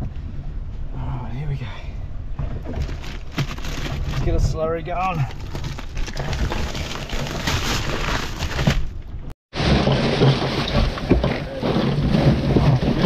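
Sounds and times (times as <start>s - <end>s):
plastic bags crinkling: 2.6s - 4.4s, 5.1s - 8.9s
ice cubes rattling: 5.2s - 8.7s.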